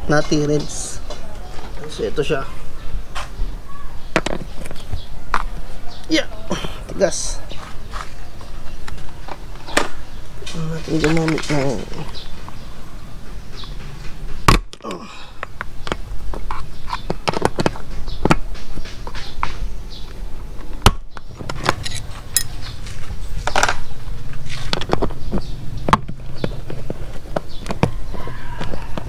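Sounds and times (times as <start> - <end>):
wrenches clinking on metal bolts: 21.6 - 22.6.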